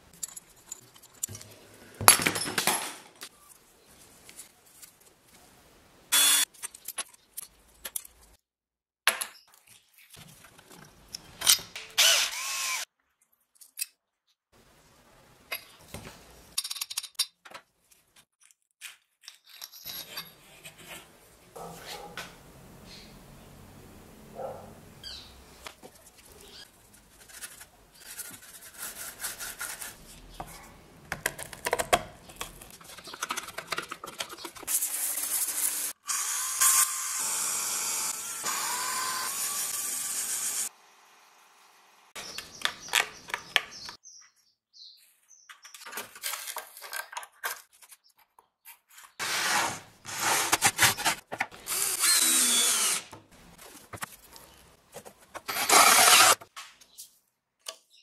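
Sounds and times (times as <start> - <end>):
cordless drill drilling into wood: 6.1 - 6.4, 12.0 - 12.9, 51.7 - 53.1, 55.5 - 56.4
handling noises: 53.1 - 57.3.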